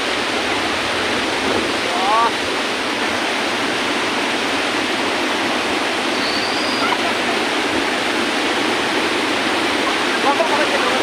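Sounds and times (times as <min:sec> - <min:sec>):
waterfall over rocks: 0:00.0 - 0:11.0.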